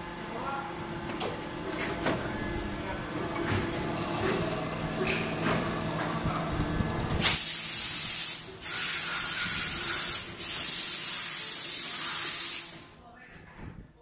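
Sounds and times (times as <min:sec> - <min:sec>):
compressed air jet hissing: 0:07.2 - 0:12.8.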